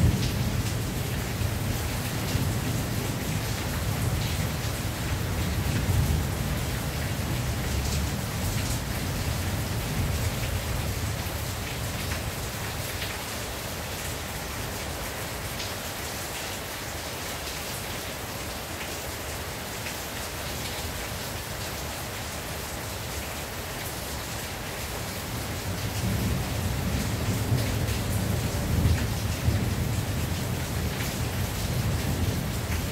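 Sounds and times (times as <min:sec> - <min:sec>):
rain on a tin roof: 0:00.0 - 0:32.9.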